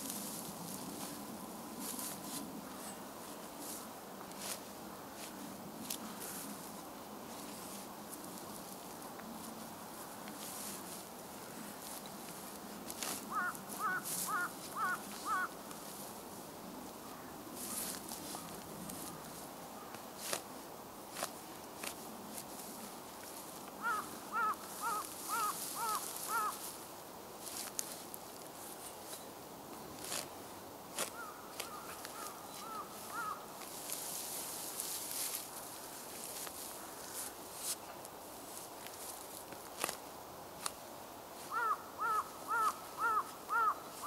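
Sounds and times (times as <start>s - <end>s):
crow cawing: 13.3s - 15.6s, 23.8s - 26.7s, 31.1s - 33.5s, 41.5s - 44.0s
hoe scraping soil: 30.0s - 35.5s.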